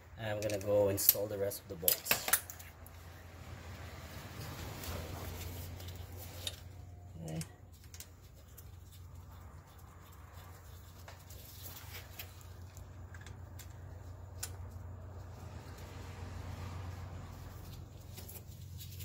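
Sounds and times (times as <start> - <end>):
light clicks and taps of bolts: 0.3 - 3.0.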